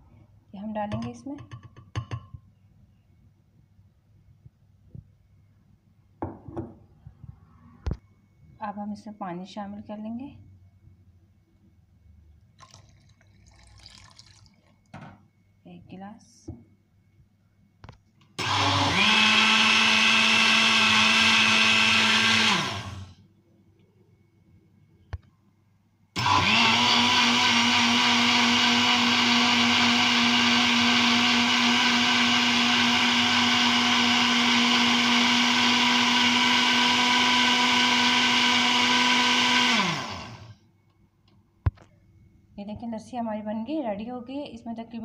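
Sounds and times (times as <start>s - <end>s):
electric blender running: 18.4s - 23.1s, 26.2s - 40.5s.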